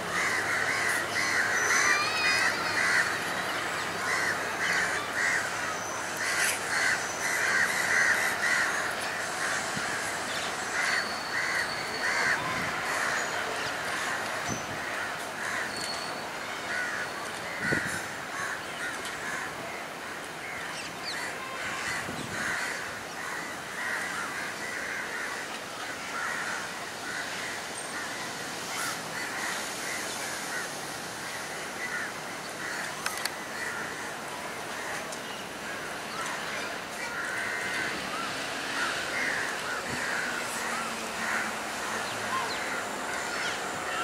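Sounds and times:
crows cawing: 0.1 - 15.8, 16.6 - 35.0, 35.6 - 44.0.

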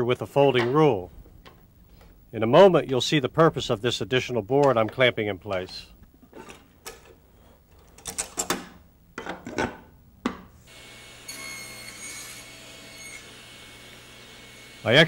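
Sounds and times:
faint steady hum: 0.0 - 13.2.

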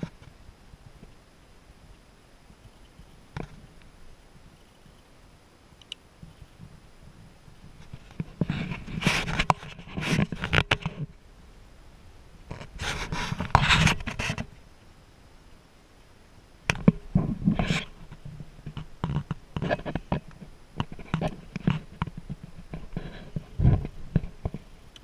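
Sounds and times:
sharp clicks and knocks: 7.8 - 11.1, 16.7 - 25.0.

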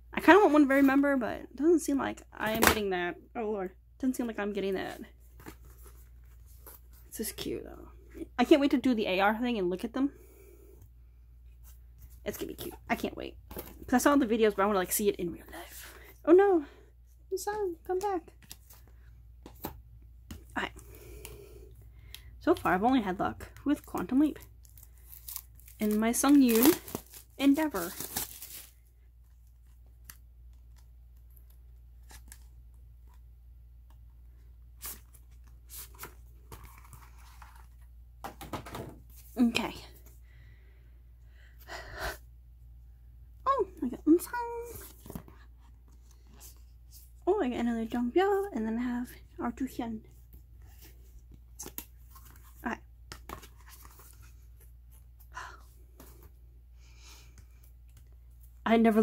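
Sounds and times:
cardboard packaging rustling: 23.8 - 28.9.

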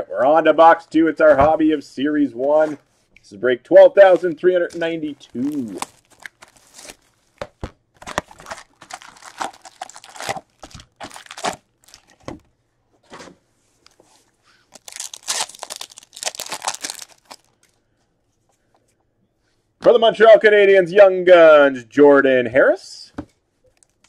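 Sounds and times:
shrink wrap crinkling and tearing: 4.0 - 7.4, 8.0 - 12.4, 14.6 - 17.8, 23.7 - 24.0
foil pack tearing: 5.2 - 7.2, 8.0 - 12.2, 14.7 - 17.6.

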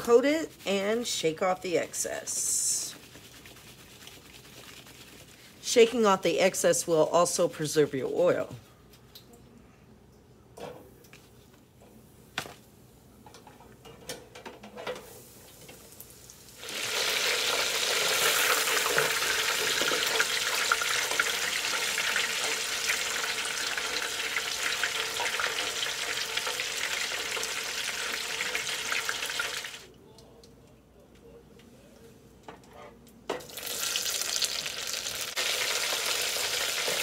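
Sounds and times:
deep frying crackling sizzle: 14.2 - 29.9, 33.4 - 37.0.

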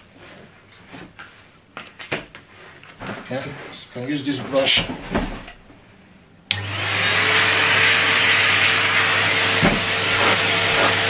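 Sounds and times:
vacuum cleaner motor running: 6.5 - 11.0.

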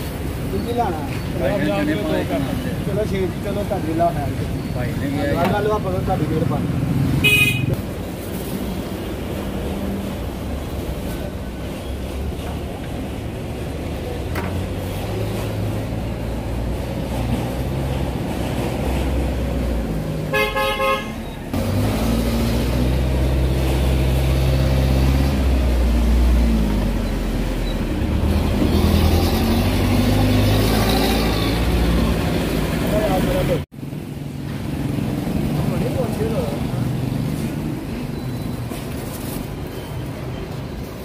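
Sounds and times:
vehicle horn beeping: 7.2 - 7.8, 20.3 - 21.3
vehicle engines running: 21.2 - 41.0.

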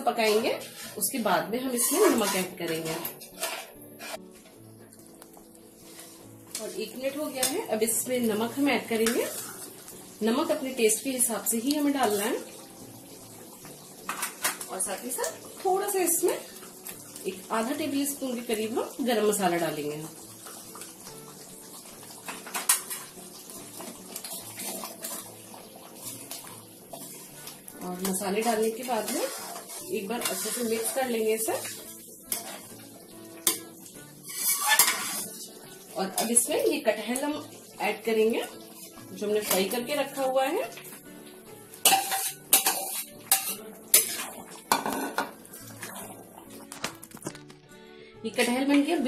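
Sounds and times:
gravy simmering: 0.0 - 47.6
metal ladle scraping pan: 0.1 - 4.6, 5.8 - 10.4, 23.8 - 27.3, 28.0 - 36.5, 38.4 - 40.9, 41.7 - 46.8.

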